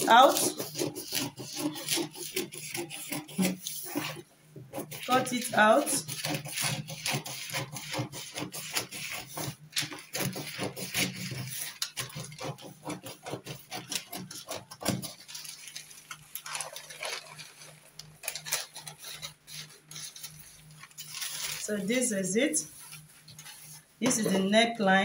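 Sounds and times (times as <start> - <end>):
scissors snipping paper: 0.0 - 4.2, 4.8 - 21.8
paper rustling and crinkling: 8.6 - 22.0, 22.6 - 24.2.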